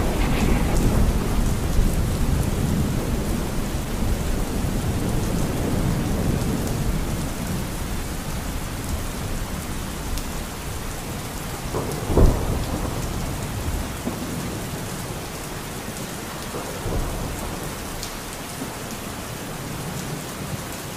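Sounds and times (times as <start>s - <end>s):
thunder rolling: 0.0s - 10.9s, 11.5s - 15.2s
steady rain: 0.0s - 20.9s.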